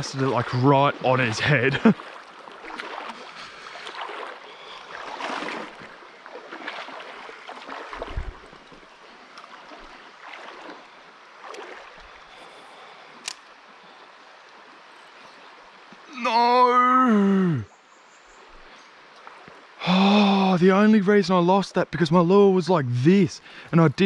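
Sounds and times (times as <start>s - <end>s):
splashing and rustling: 0.0s - 14.0s
river water running: 0.0s - 24.0s.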